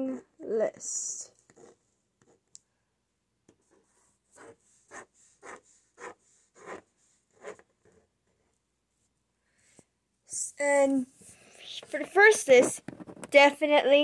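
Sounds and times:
pen scratching on paper: 1.5s - 2.4s, 3.5s - 8.5s.

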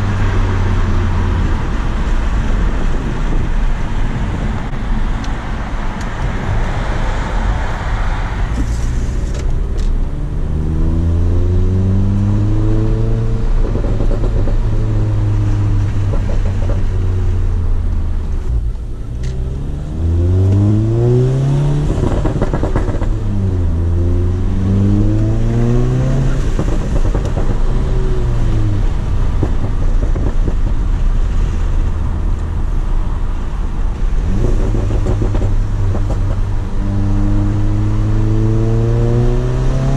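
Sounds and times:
car engine accelerating: 8.5s - 39.9s.

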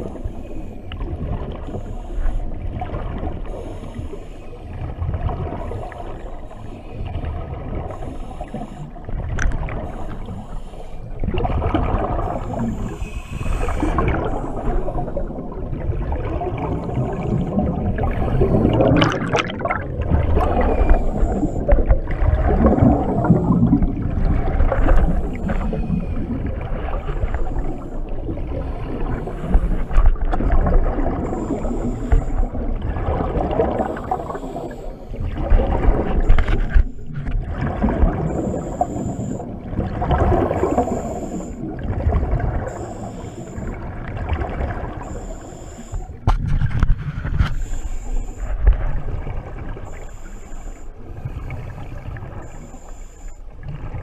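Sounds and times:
regulator breathing underwater: 0.0s - 4.8s, 5.6s - 15.6s, 16.6s - 43.9s, 44.8s - 46.2s, 46.8s - 48.8s, 49.8s - 53.6s
exhaled bubbles gurgling: 0.0s - 54.0s.

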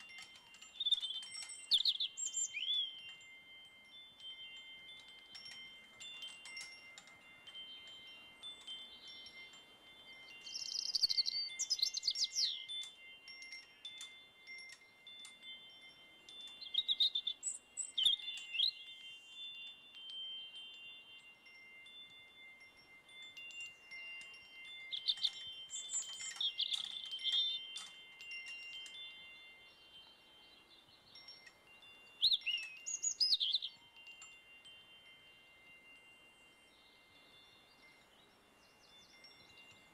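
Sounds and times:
wind chimes ringing: 0.0s - 39.9s
bird chirps: 0.7s - 3.2s, 10.2s - 12.9s, 16.4s - 19.7s, 24.6s - 27.9s, 30.4s - 33.9s.

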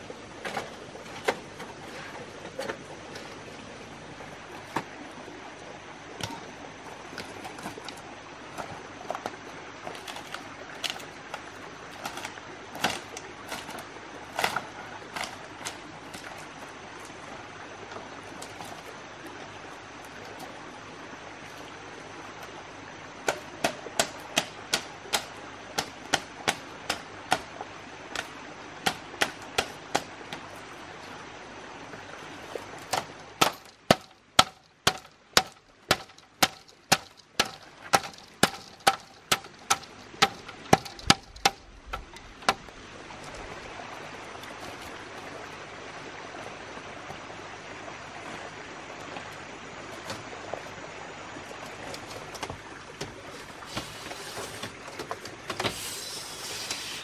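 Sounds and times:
stream rushing: 0.0s - 57.0s
hand tool striking wood: 23.2s - 27.5s, 28.1s - 30.4s, 32.9s - 42.6s.

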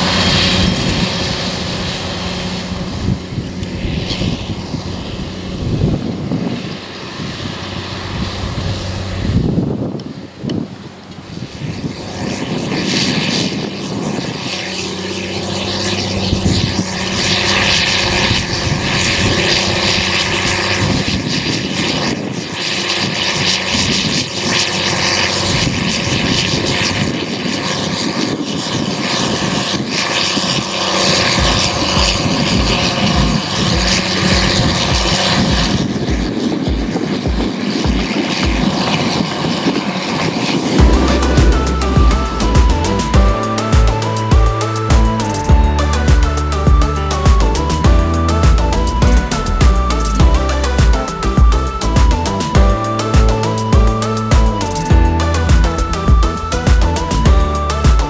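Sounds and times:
tractor diesel engine under load: 0.0s - 6.2s, 40.7s - 57.9s.

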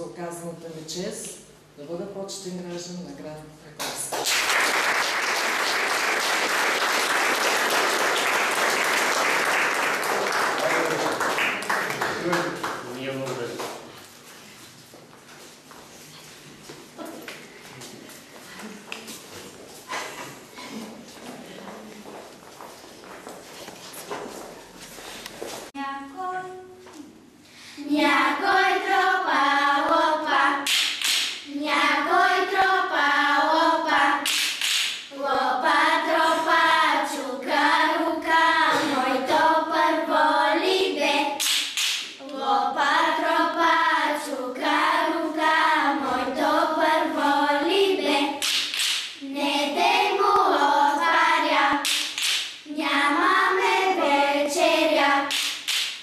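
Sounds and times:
girls singing folk song: 27.6s - 55.8s.

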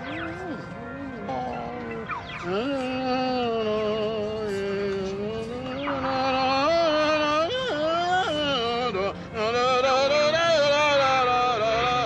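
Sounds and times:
person singing wordlessly: 0.0s - 12.0s.

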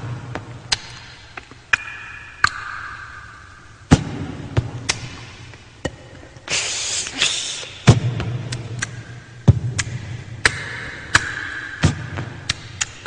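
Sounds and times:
loud breathy hiss: 6.5s - 7.9s.

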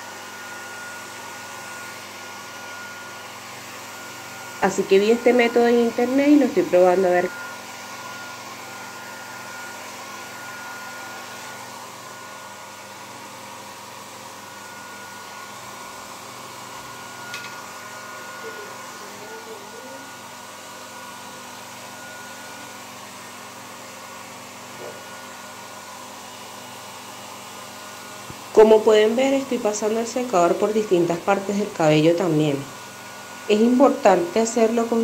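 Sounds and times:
hair dryer running: 0.0s - 35.0s.

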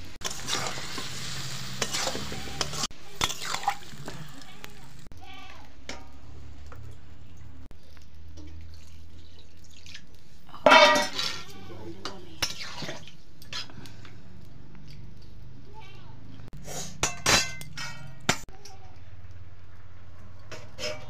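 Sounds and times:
water splashing into steel bowl: 1.9s - 4.1s, 8.4s - 11.6s, 12.4s - 13.2s
steel cookware clanking: 10.5s - 13.7s, 16.9s - 18.5s, 20.5s - 21.0s.

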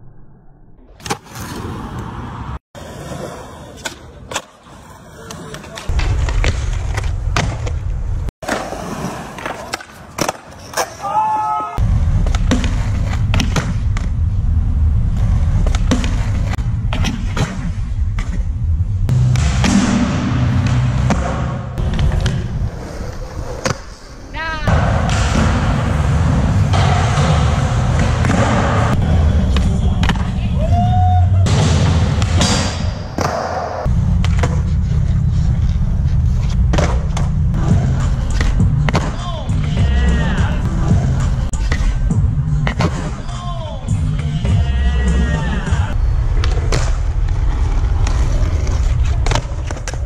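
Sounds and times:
skateboard wheels rolling on concrete: 1.0s - 19.2s, 20.7s - 32.2s, 33.0s - 50.0s
steady low rumble: 11.8s - 23.2s, 24.6s - 33.2s, 33.9s - 49.4s.

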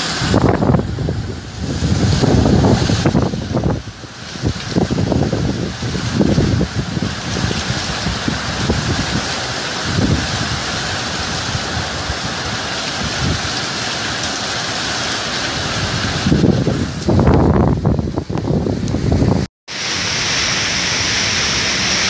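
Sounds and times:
wind gusts buffeting microphone: 0.0s - 13.6s, 15.6s - 19.5s
heavy rain and wind hiss: 0.0s - 22.0s.

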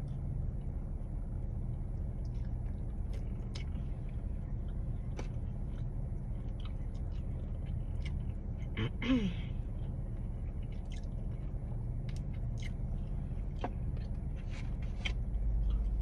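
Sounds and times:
low hum: 0.0s - 16.0s
person chewing: 2.2s - 8.8s, 9.7s - 14.3s.

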